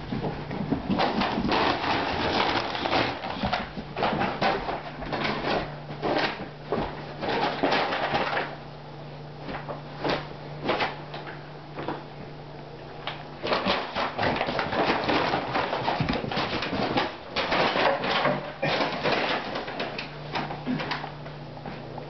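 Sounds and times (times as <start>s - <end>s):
dogs scuffling and rustling: 0.0s - 8.6s, 13.0s - 22.0s.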